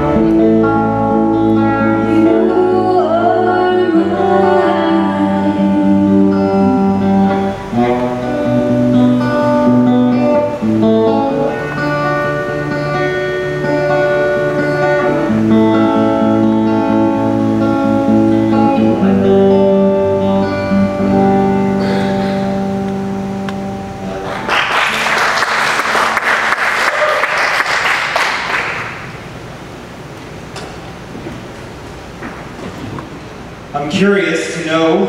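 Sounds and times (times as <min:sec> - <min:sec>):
audience applauding: 0:24.0 - 0:29.4.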